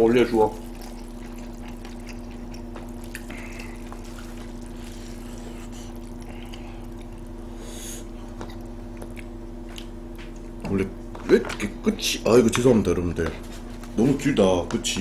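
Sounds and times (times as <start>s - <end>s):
electric fan humming: 0.0s - 15.0s
chopsticks lifting wet noodles: 0.5s - 9.2s.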